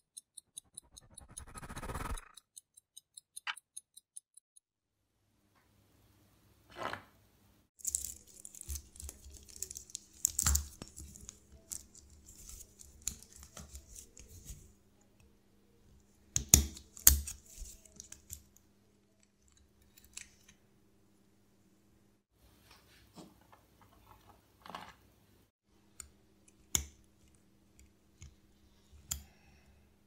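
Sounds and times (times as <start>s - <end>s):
small tools scraping metal: 0.1s - 4.0s.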